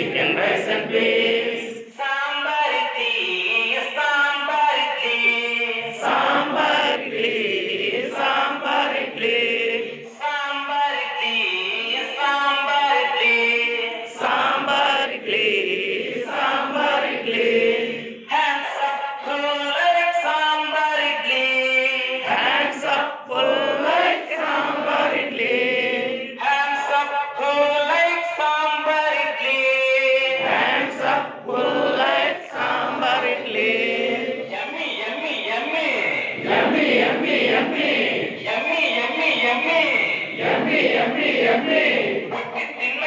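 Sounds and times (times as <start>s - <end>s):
group singing chanted rhyme: 0.0s - 2.0s, 5.7s - 10.2s, 13.6s - 18.3s, 22.2s - 26.4s, 30.3s - 34.8s, 35.9s - 38.6s, 39.4s - 43.0s.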